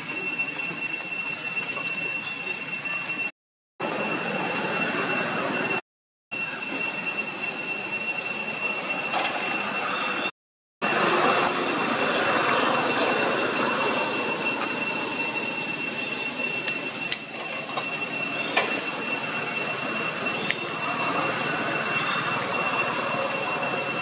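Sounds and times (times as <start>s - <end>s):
insects droning: 10.9s - 24.0s.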